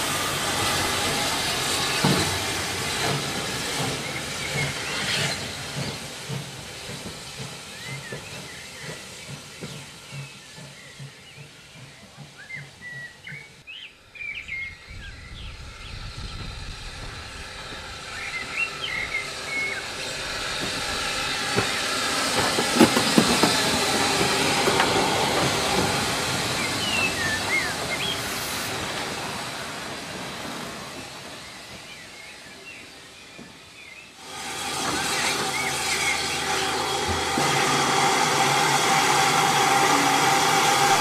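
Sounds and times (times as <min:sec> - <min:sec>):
steam locomotive hissing and clanking: 0:00.0 - 0:41.0
birds chirping: 0:17.5 - 0:29.9, 0:35.0 - 0:37.2.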